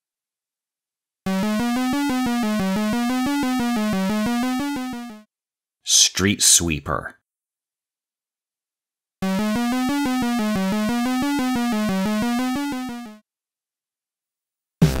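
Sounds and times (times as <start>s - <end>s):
pulsing synthesizer tone: 1.3s - 5.2s, 9.2s - 13.2s.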